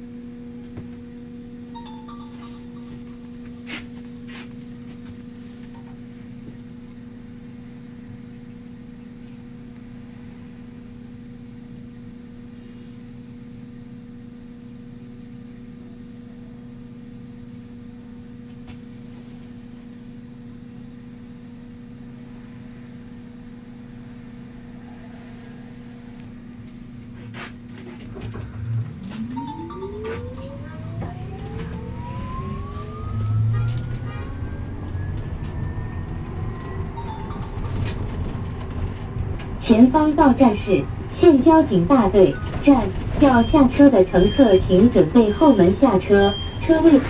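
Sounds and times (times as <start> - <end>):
electric bus humming: 0.0 - 47.0
traction motor whine: 27.6 - 47.0.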